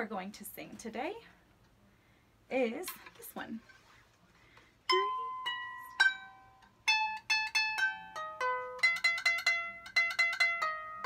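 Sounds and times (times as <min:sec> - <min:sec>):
harp plucked by hand: 0:04.9 - 0:11.0.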